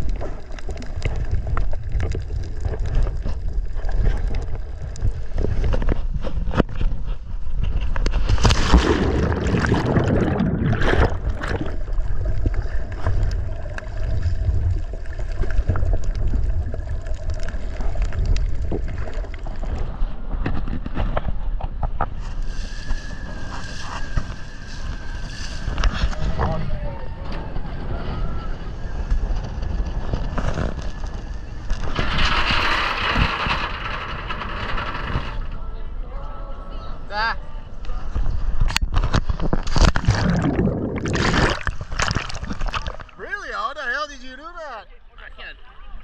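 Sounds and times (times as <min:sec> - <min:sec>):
muffled underwater rumble and gurgling: 0:00.0 - 0:34.4, 0:37.5 - 0:43.2
wind: 0:00.0 - 0:46.0
water rushing past a boat: 0:08.1 - 0:32.5, 0:39.0 - 0:43.2
splashing bubbles: 0:08.3 - 0:19.8, 0:39.5 - 0:43.2.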